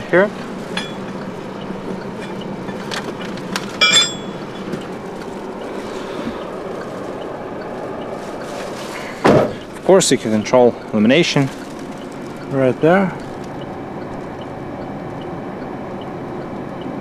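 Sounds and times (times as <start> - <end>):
steady low hum: 0.0 - 17.0
metal tools clinking: 0.7 - 1.2, 2.2 - 4.9.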